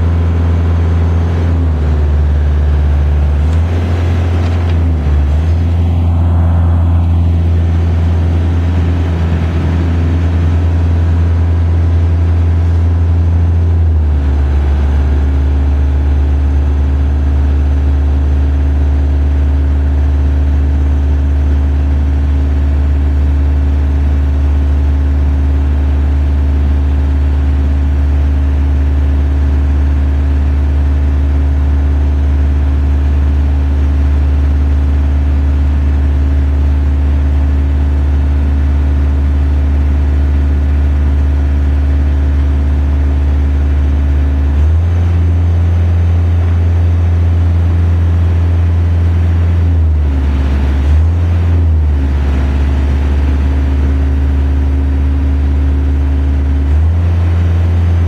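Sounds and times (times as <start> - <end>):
boom lift engine running: 0.0 - 58.0.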